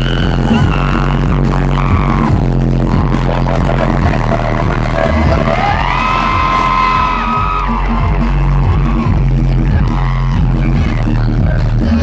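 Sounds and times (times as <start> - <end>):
loud music with heavy bass beat: 0.0 - 12.0
crowd cheering: 2.9 - 11.0.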